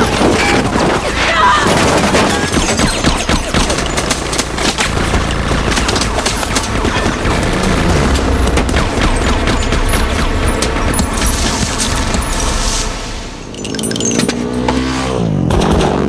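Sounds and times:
motorcycle engines rumbling: 0:00.0 - 0:16.0
submachine gun automatic fire: 0:01.6 - 0:12.9.

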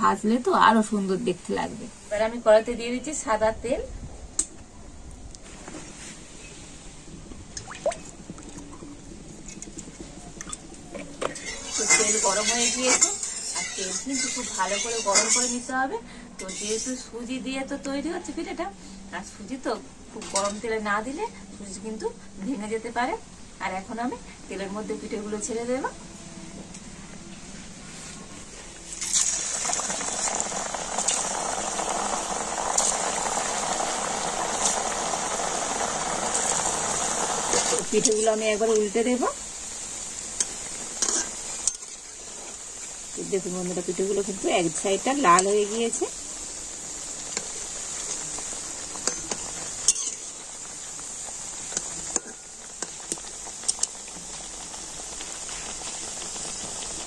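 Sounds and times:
oil sizzling and bubbling: 0:00.0 - 0:57.0
sharp crackle: 0:07.5 - 0:15.7, 0:28.0 - 0:57.0.

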